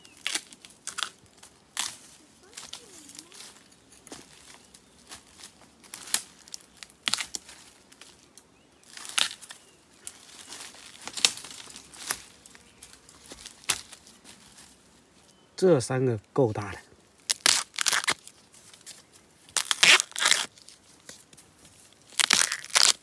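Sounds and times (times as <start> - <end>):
bamboo shoots snapping: 0.0 - 2.0, 5.9 - 12.2, 17.2 - 23.0
dry leaves rustling: 0.0 - 15.4, 16.6 - 23.0.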